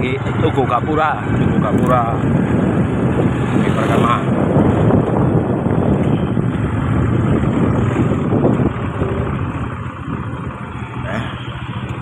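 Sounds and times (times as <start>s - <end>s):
wind rumbling on microphone: 0.0s - 11.0s
motorcycle engine running: 0.0s - 12.0s.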